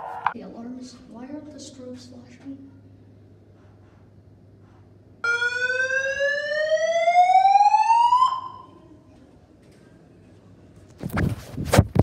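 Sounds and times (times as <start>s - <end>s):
fire alarm whoop tone: 5.2s - 8.8s.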